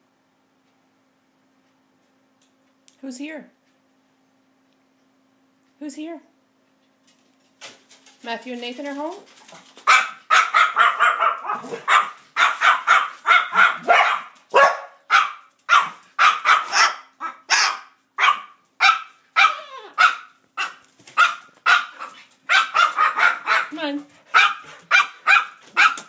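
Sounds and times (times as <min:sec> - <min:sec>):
cockatoo imitating dog barks: 0:09.9 - 0:26.0.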